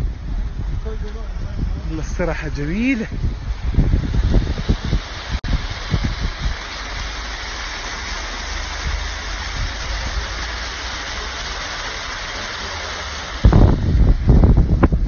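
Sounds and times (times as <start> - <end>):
low rumble: 0.0 - 10.8
steady rushing noise: 0.0 - 15.0.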